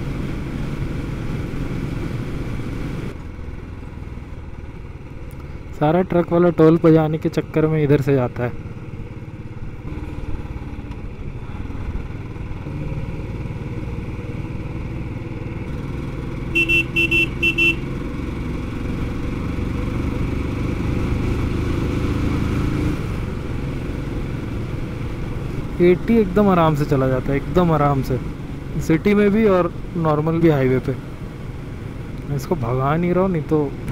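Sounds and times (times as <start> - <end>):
motorcycle engine running: 8.3 - 26.2
vehicle horn toots: 16.5 - 17.9.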